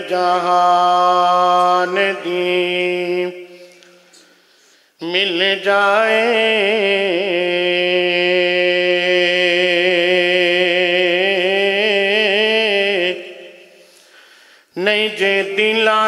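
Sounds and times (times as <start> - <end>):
man singing a long note: 0.0 - 4.0.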